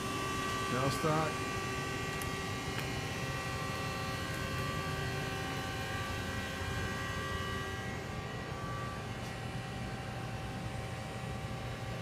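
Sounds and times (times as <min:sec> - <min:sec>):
machine whining tones: 0:00.0 - 0:11.9.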